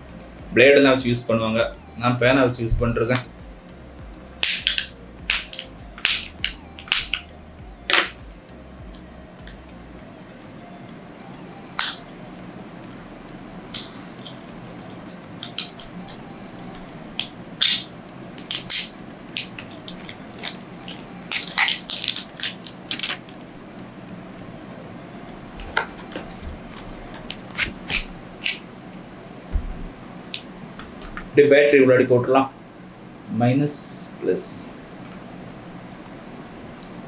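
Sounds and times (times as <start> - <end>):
packaging rustling and ripping: 18.4 - 23.4.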